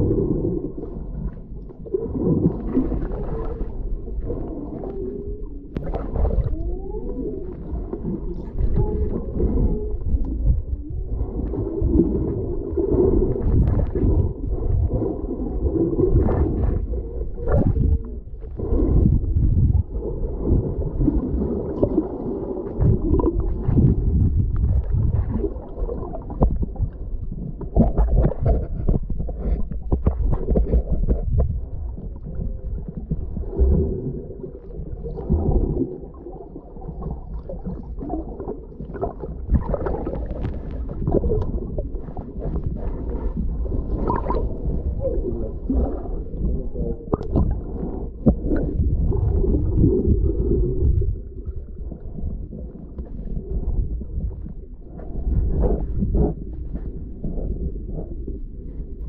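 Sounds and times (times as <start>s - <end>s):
muffled underwater water rumble: 0.0s - 59.0s.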